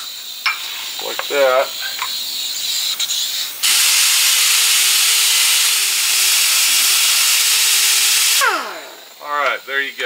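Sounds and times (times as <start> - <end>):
die grinder grinding metal: 3.6 - 9.2.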